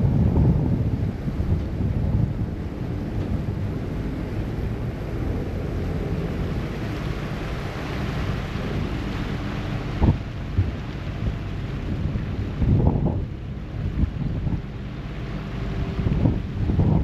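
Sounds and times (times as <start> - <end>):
ferry engine rumble: 0.0 - 17.0
water along hull: 0.0 - 17.0
wind buffeting microphone: 0.0 - 17.0.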